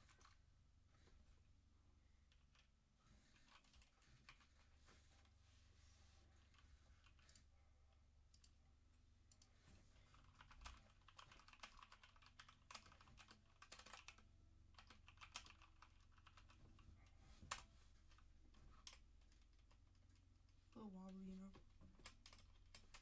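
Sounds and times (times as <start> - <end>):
typing on mechanical keyboard: 3.3 - 4.7, 6.4 - 7.5, 9.3 - 16.8, 17.5 - 20.5, 21.9 - 23.0.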